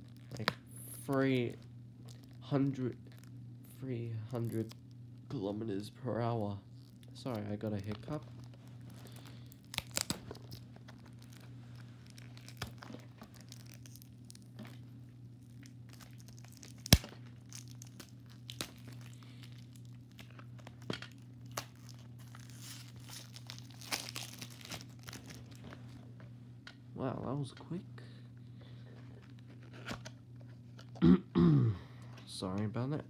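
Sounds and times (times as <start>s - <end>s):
packaging crinkling and tearing: 0.0s - 3.4s, 4.3s - 4.9s, 6.6s - 26.0s, 28.9s - 31.0s
steady low hum: 0.0s - 33.0s.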